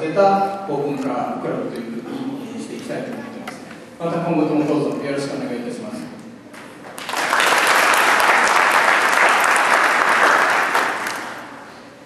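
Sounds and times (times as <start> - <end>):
audience applauding: 6.9 - 11.6.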